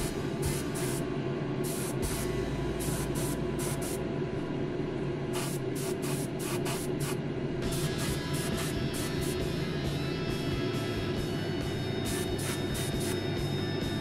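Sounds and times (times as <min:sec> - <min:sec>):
airbrush spraying hiss: 0:00.0 - 0:04.0, 0:05.4 - 0:09.5, 0:12.1 - 0:13.2
steady low hum: 0:00.0 - 0:14.0.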